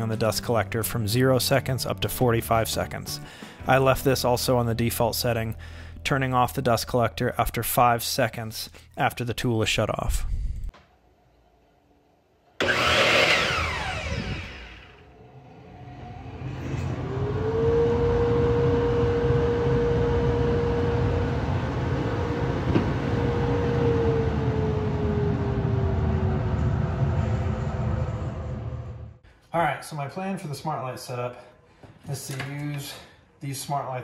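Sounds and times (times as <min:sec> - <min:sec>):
dust collector humming: 0:12.6 - 0:29.2
miter saw motor whine: 0:12.6 - 0:29.2.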